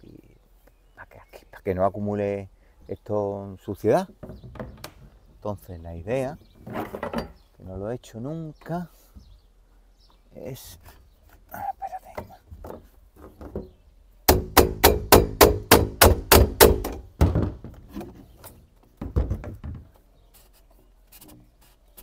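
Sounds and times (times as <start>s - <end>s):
fast ringing knocks: 14.3s - 17.0s.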